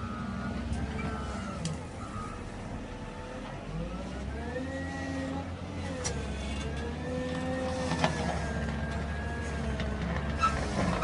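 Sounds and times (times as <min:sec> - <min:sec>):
reversing alarm beeps: 0:00.0 - 0:02.5
diesel engine working under load: 0:00.0 - 0:11.0.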